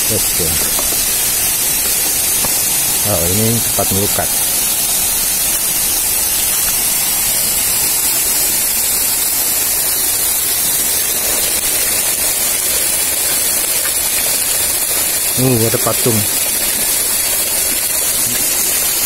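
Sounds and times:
falling water splashing: 0:00.0 - 0:19.0.

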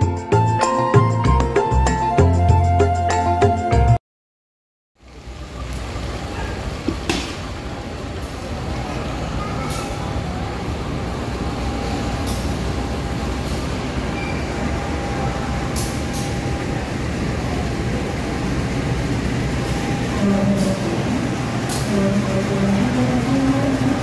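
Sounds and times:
diesel locomotive engine rumbling: 0:05.0 - 0:24.0.

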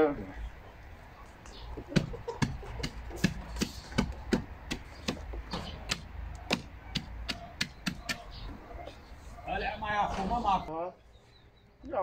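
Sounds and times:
sharp tapping on wooden post: 0:01.4 - 0:08.6.

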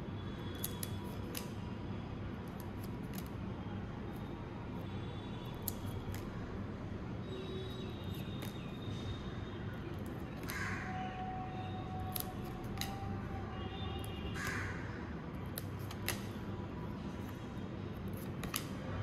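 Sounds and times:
trading cards being flipped: 0:12.1 - 0:13.0, 0:15.5 - 0:16.4, 0:18.1 - 0:18.8.

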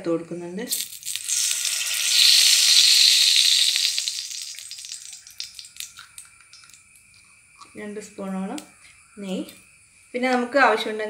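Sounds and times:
ghee sizzling in a pan: 0:00.7 - 0:06.9
crackles: 0:00.7 - 0:07.8.

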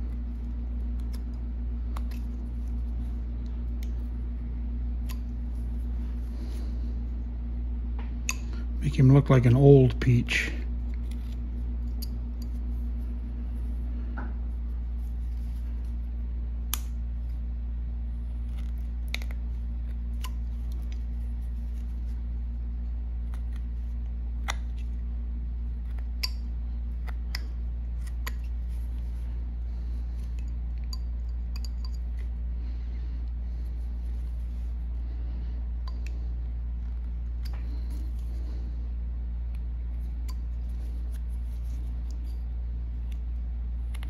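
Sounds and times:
steady low hum: 0:00.0 - 0:44.0.

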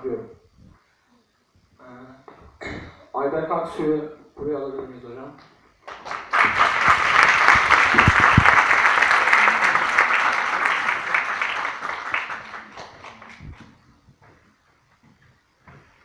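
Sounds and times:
audience applauding: 0:05.8 - 0:13.8.

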